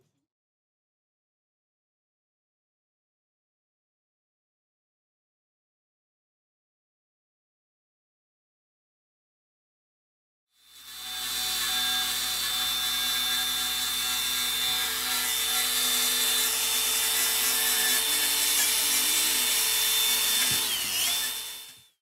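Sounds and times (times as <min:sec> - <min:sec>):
angle grinder whining: 0:10.6 - 0:22.0.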